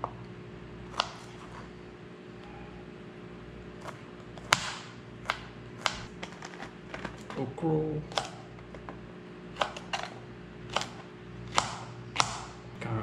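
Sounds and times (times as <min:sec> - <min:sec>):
knife chopping on plastic board: 0:00.9 - 0:01.5, 0:03.8 - 0:06.1, 0:08.1 - 0:08.5, 0:09.5 - 0:12.6
low hum: 0:01.6 - 0:06.2.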